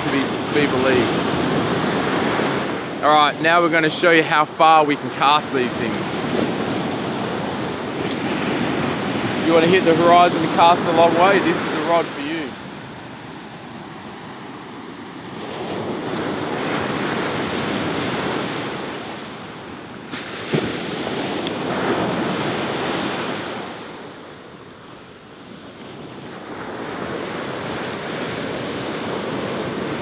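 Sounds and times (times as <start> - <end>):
surf breaking on beach: 0.0 - 24.2
wind on microphone: 5.8 - 24.4, 25.6 - 30.0.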